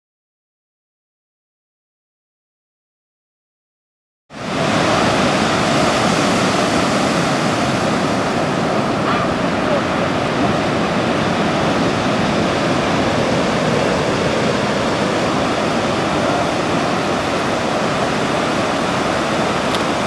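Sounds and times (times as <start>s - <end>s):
ocean waves breaking: 4.4s - 20.0s.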